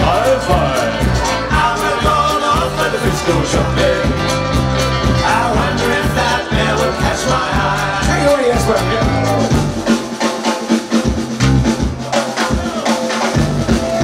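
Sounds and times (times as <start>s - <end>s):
accordion: 0.0s - 10.5s
drum-kit beat: 0.0s - 14.0s
live folk-rock band playing: 0.0s - 14.0s.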